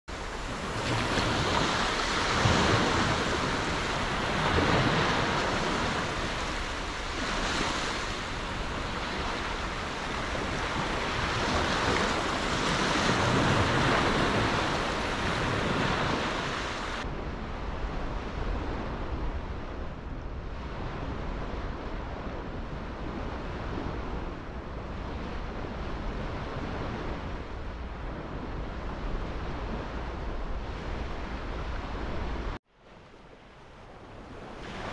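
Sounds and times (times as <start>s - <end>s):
wind: 0.0s - 34.9s
small waves washing on sand: 0.1s - 19.7s, 20.4s - 34.9s
distant surf: 0.1s - 34.9s.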